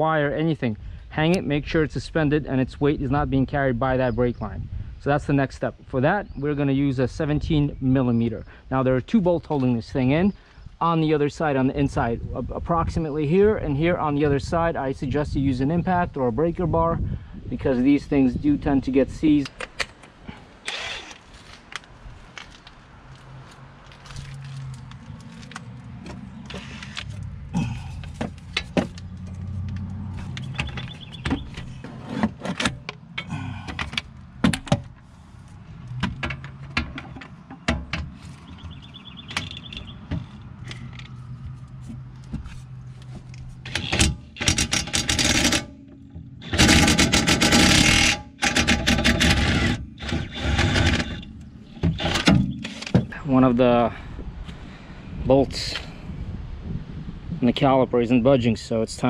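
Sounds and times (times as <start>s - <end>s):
tool handling clicks and knocks: 19.4s - 27.3s, 27.9s - 35.1s, 35.8s - 53.2s
impact wrench hammering: 46.4s - 51.2s.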